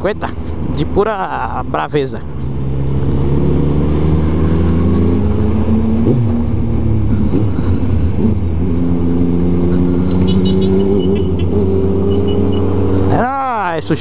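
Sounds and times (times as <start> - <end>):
motorcycle engine at low revs: 2.2 - 13.2.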